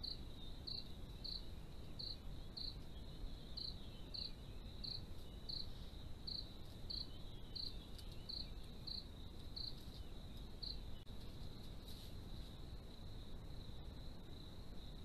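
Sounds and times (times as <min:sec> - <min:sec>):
insect chirp repeating: 0:00.0 - 0:09.8
cricket trill: 0:00.0 - 0:15.0
low background noise: 0:00.0 - 0:15.0.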